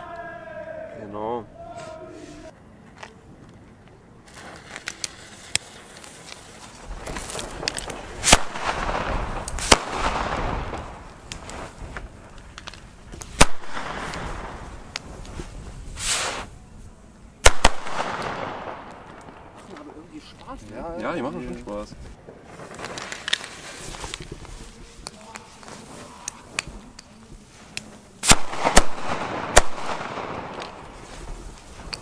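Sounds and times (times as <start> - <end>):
hissing fuses: 4.0 - 20.7
firecracker bangs: 6.8 - 12.1, 13.3 - 16.5, 17.4 - 19.7, 28.2 - 32.0.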